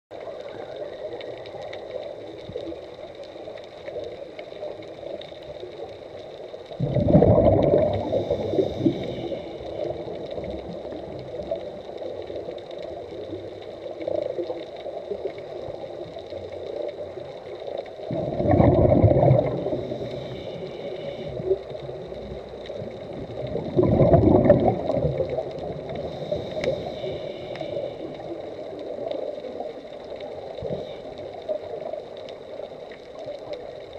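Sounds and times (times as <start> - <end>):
steady underwater hiss: 0.2 - 33.9
loud underwater bubbling surges: 6.8 - 9.1, 18.1 - 20.0, 23.1 - 25.9.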